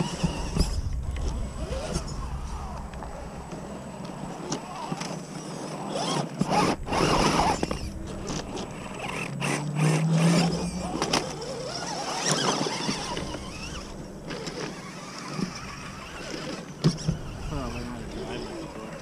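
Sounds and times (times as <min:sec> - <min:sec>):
small electric motors whining: 0:00.0 - 0:19.0
tyres crunching on gravel: 0:00.0 - 0:19.0.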